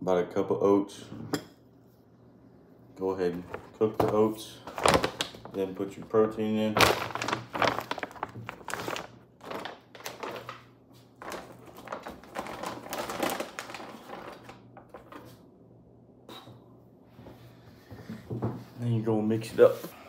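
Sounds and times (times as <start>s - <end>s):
plastic pouches rustling: 3.4s - 15.3s.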